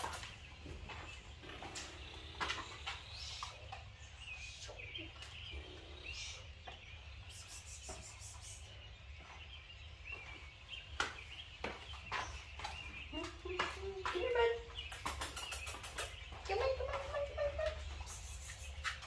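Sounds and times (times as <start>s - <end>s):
footsteps on concrete: 0.0s - 3.8s, 9.0s - 15.2s, 16.0s - 19.0s
birds chirping: 0.0s - 19.0s.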